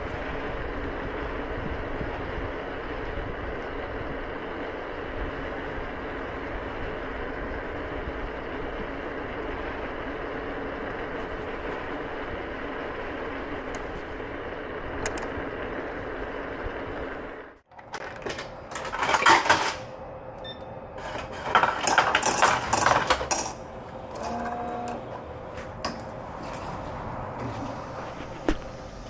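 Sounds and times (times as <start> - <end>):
clattering and knocking: 17.7 - 19.9, 21.0 - 23.6
brief steady tone: 20.4 - 20.8.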